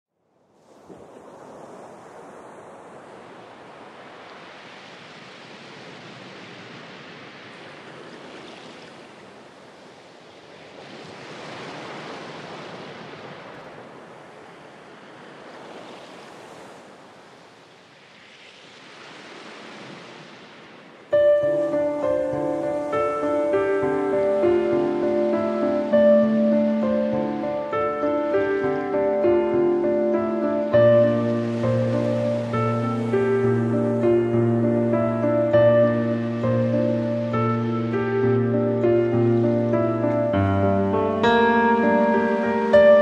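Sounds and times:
rushing surf-like water: 0.3s - 43.0s.

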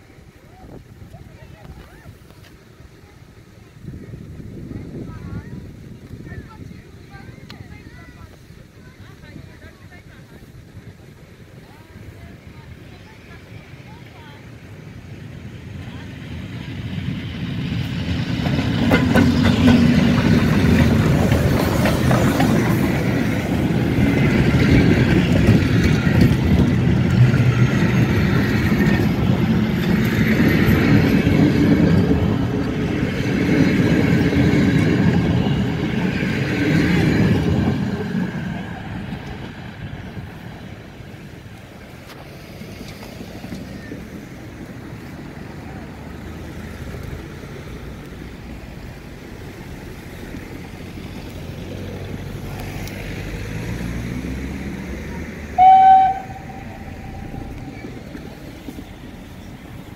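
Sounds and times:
train wheels clattering on rails: 14.9s - 59.9s.

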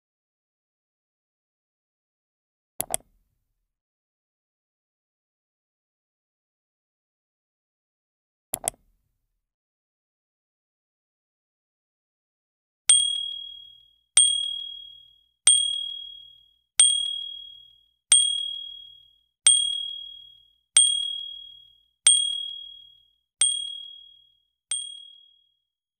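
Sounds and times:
notification bell ding: 12.9s - 25.4s.

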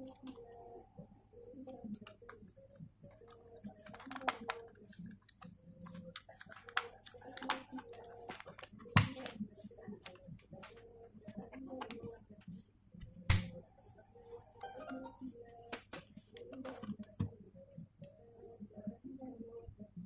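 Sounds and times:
plastic power strip clicks and rattles: 3.8s - 5.4s.

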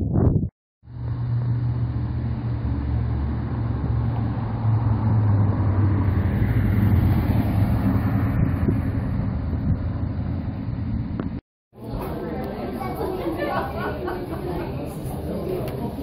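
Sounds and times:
vehicle engine humming: 0.8s - 11.4s
traffic noise: 0.8s - 16.0s.

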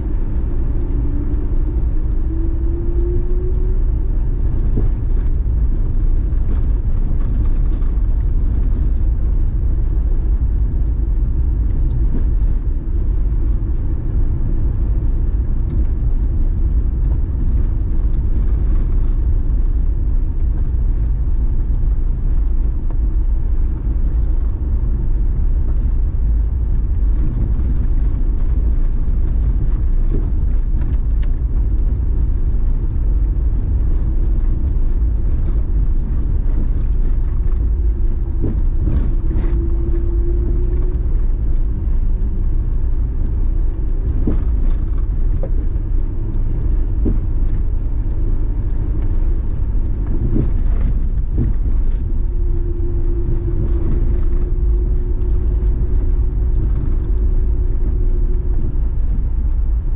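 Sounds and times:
engine and tyre rumble: 0.0s - 59.9s.

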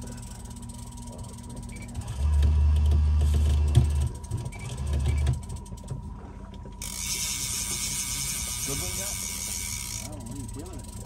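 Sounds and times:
electric motor humming: 6.8s - 11.0s.

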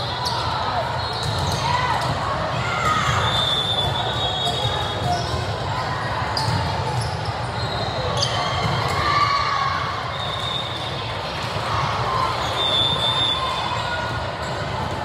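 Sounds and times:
crowd chatter: 0.0s - 15.0s
volleyballs hit and bouncing: 1.1s - 3.2s, 4.5s - 9.1s.

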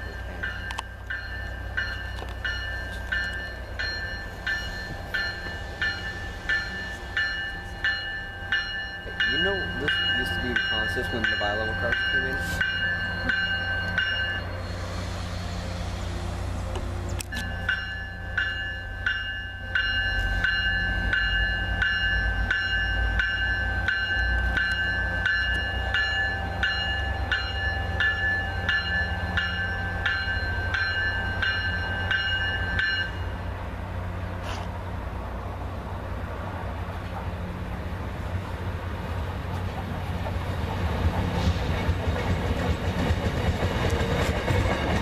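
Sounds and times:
train warning bell ringing: 0.0s - 14.9s, 17.2s - 33.5s.

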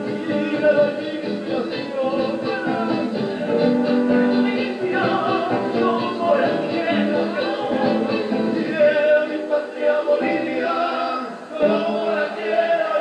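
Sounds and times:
string accompaniment with charango: 0.0s - 9.3s
male voices singing together: 0.0s - 13.0s.

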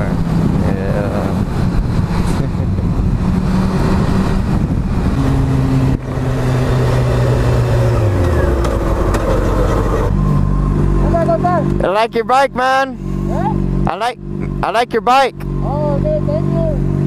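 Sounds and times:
wind rushing over microphone: 0.0s - 11.2s
motorcycle engine running: 12.9s - 17.0s.

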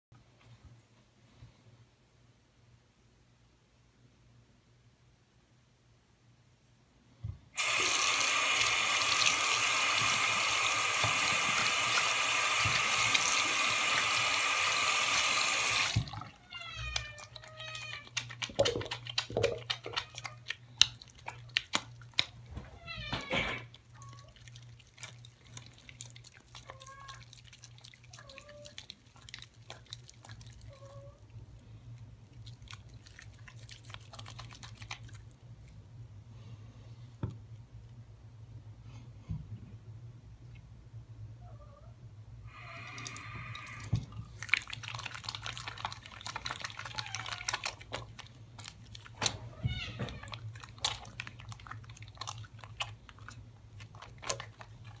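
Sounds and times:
sink tap running: 7.6s - 16.2s
hands lathering soap: 7.6s - 22.6s, 23.6s - 35.4s, 42.6s - 55.0s.

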